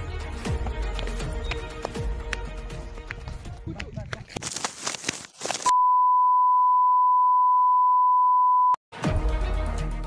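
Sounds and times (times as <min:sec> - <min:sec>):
steady electronic beep tone: 0:05.7 - 0:08.8.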